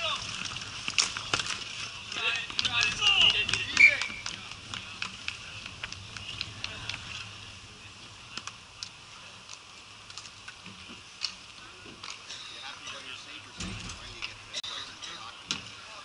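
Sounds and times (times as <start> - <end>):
faint voices: 0.0 - 16.0
hockey sticks tapping on court tiles: 0.8 - 7.2.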